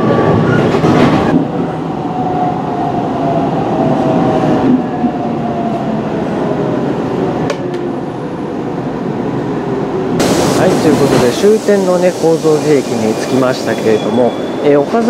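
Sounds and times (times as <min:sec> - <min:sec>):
electric train running and braking: 0:00.0 - 0:15.0.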